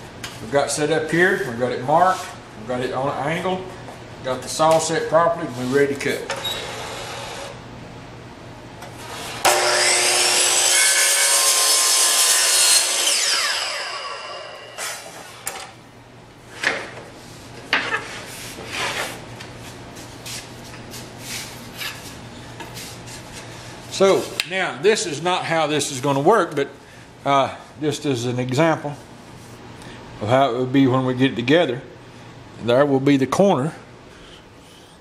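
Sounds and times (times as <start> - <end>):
miter saw cutting wood: 9.1 - 15.5.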